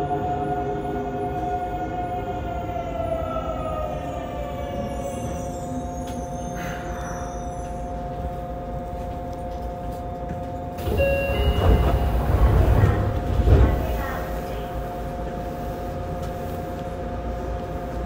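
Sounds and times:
train inverter whine: 0.0 - 18.0
wheel and track rumble: 8.0 - 15.4.

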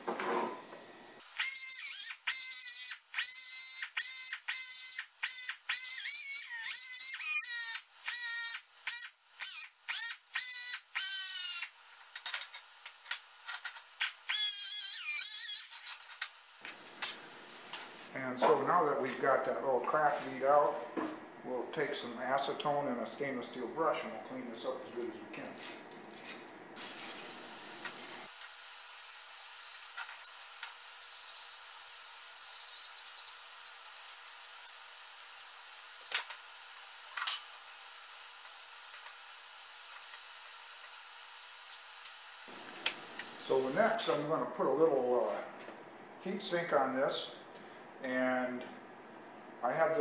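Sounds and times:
pneumatic die grinder whining: 1.2 - 16.7, 26.8 - 44.0
wire brush scrubbing metal: 26.8 - 36.1.

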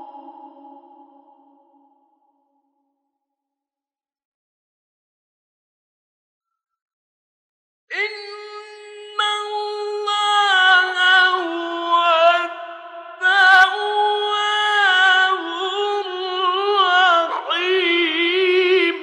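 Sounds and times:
man chanting melodically: 7.9 - 19.0.

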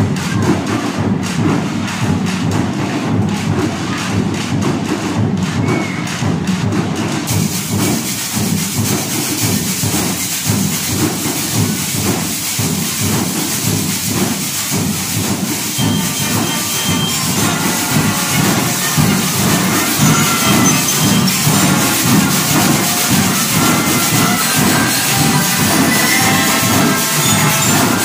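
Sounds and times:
drums steady beat: 0.0 - 28.0
tube shakers hissing: 7.3 - 28.0
short high ringing notes: 15.8 - 28.0.

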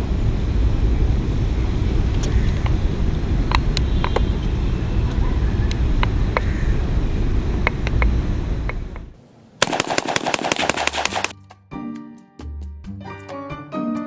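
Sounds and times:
car road noise rumble: 0.0 - 9.6
rapid rattle of sharp cracks: 9.6 - 11.4
sharp clicks: 9.6 - 11.4.

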